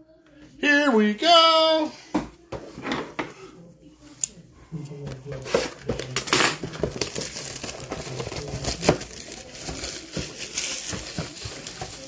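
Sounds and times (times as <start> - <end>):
plastic wrapping crinkling: 6.6 - 12.0.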